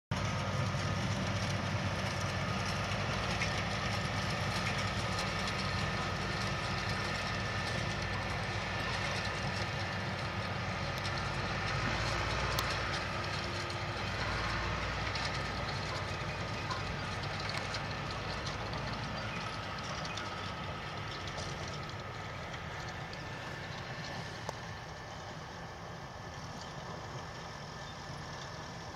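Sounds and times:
tractor diesel engine under load: 0.1 - 28.9.

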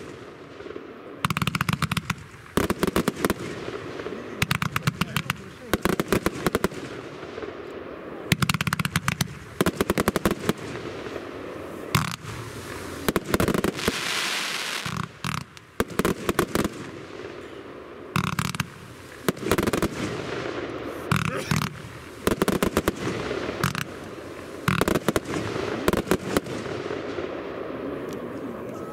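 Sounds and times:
firework hissing: 0.0 - 27.7
firework cake firing sharp cracks: 0.0 - 28.3
crackling firework bursts: 0.0 - 28.9.

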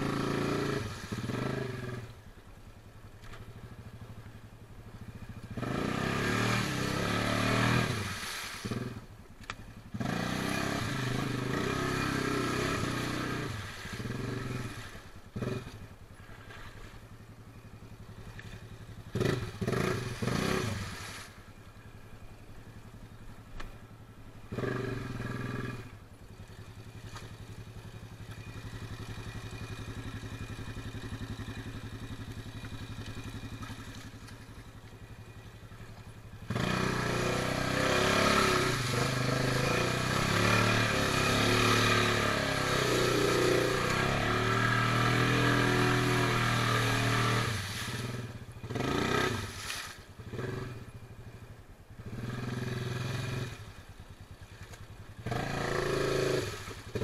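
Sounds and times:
quad engine revving: 0.0 - 2.2, 5.3 - 9.1, 9.9 - 15.8, 18.2 - 21.2, 24.5 - 50.9, 52.0 - 53.7, 54.6 - 57.0
wheels churning in mud: 0.0 - 57.0.

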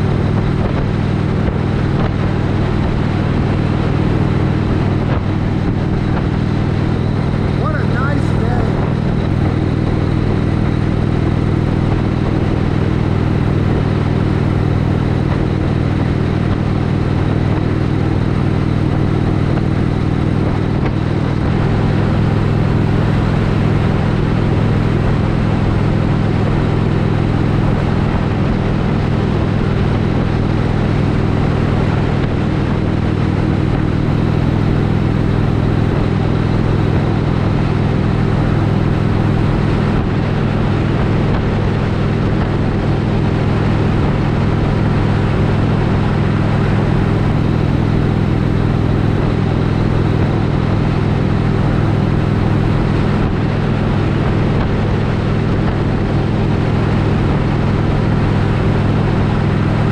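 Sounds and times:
motorcycle engine cruising: 0.0 - 59.9
wind and road noise: 0.0 - 59.9.

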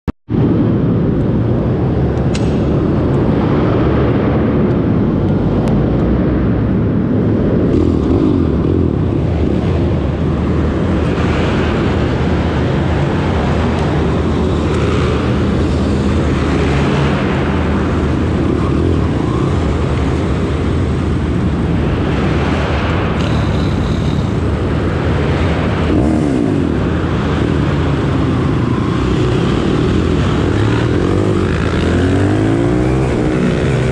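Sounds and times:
motorbike engine revving: 25.4 - 33.9.

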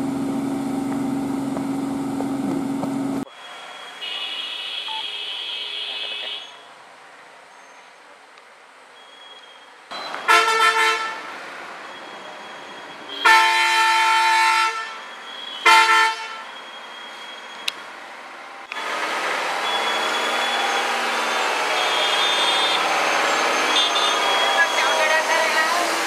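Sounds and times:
diesel engine running: 0.0 - 3.2.

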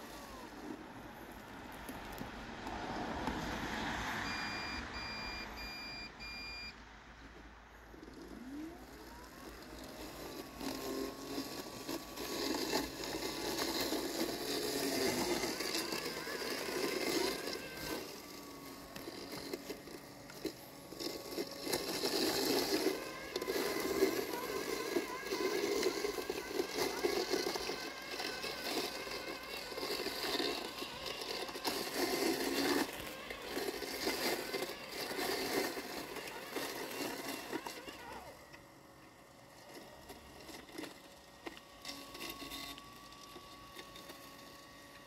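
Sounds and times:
mower cutting wet grass: 0.0 - 6.7, 7.4 - 45.0
motor whine rising in pitch: 0.0 - 45.0
short electronic beeps: 4.2 - 6.8.

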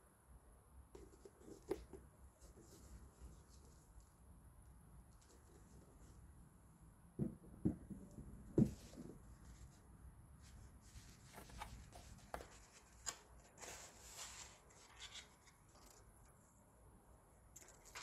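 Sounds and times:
sneaker thumping on shoebox: 7.2 - 8.8
paper envelope rustling: 10.9 - 16.1, 17.6 - 18.0.

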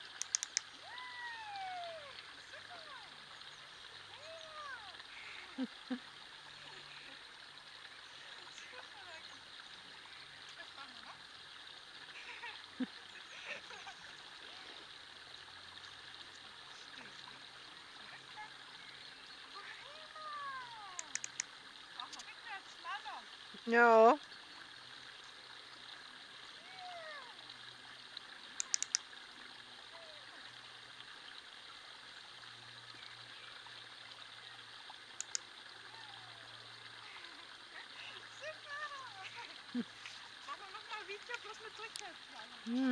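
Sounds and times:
sharp high clicks: 0.0 - 0.8, 20.9 - 22.3, 28.6 - 29.1, 35.2 - 35.5
running water rushing: 0.0 - 42.9.

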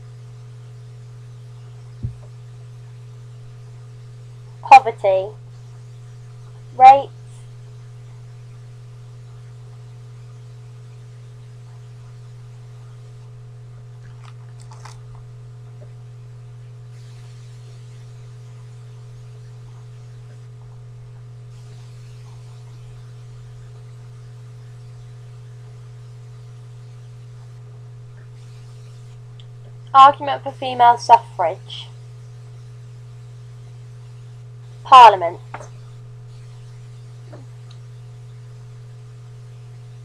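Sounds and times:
low electrical hum: 0.0 - 40.0.

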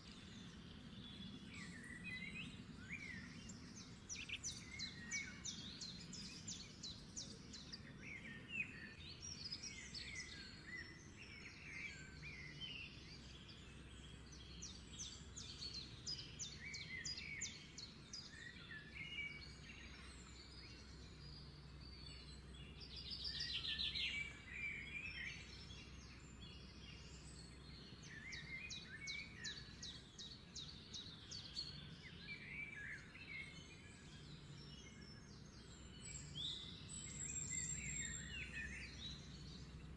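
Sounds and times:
birds chirping and trilling: 0.0 - 39.9.

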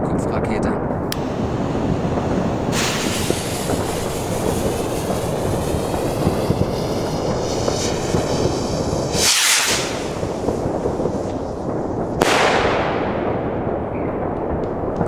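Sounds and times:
wind rumble on microphone: 0.0 - 15.0
firework fuse hissing: 1.2 - 12.3.

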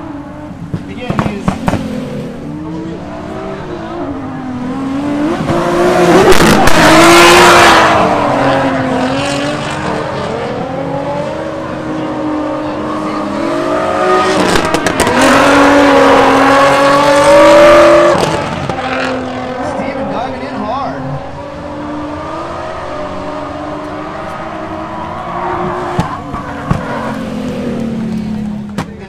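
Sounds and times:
car engines revving hard: 0.0 - 29.0.

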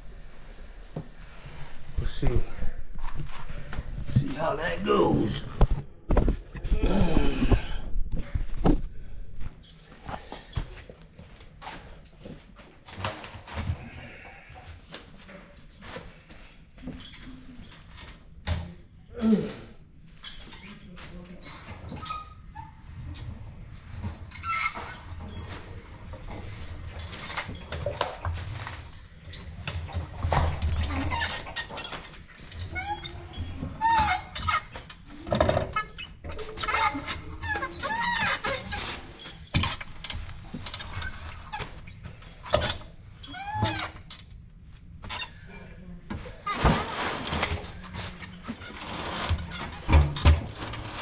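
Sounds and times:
lift squeaking and squealing: 20.4 - 27.8, 30.4 - 39.9, 40.7 - 44.0.

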